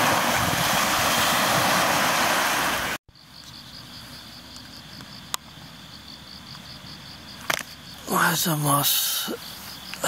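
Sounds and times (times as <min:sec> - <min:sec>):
waves washing on shore: 0:00.0 - 0:03.0
wind rushing over microphone: 0:00.0 - 0:03.0
crickets trilling: 0:00.6 - 0:10.0.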